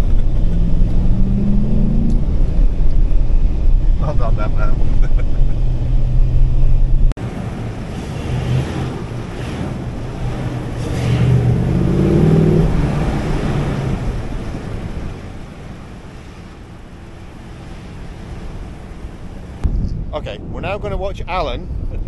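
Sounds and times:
truck engine drone: 0.0 - 20.5
wind: 0.0 - 22.0.

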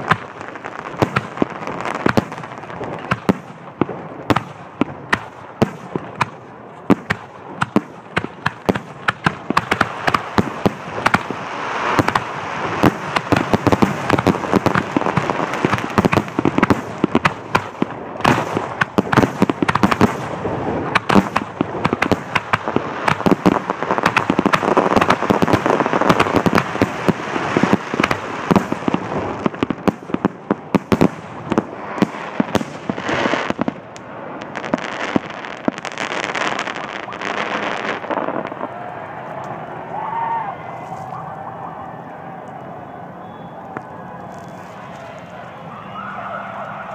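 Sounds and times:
rush of fireworks noise: 0.0 - 46.9.

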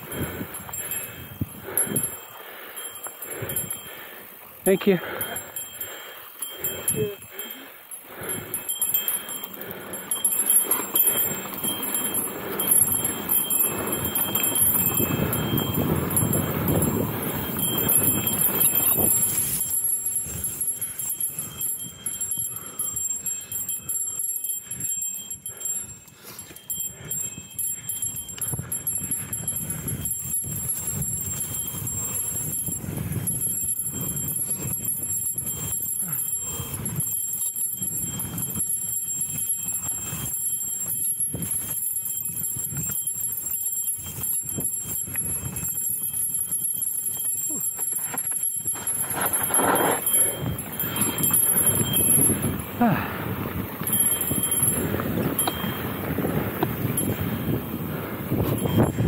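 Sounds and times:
bike rattling over dirt: 7.8 - 22.0, 28.6 - 59.0.

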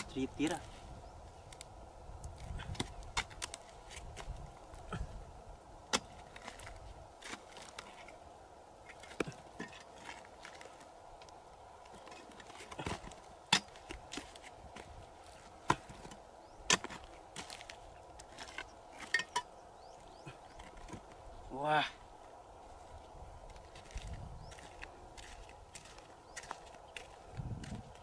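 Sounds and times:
metal digging tool chopping mud: 5.9 - 6.6, 12.6 - 14.3, 15.6 - 17.5.

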